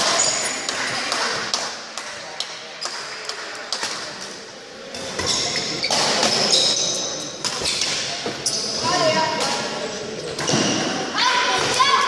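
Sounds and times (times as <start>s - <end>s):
shoes squeaking on floor: 5.0s - 9.1s.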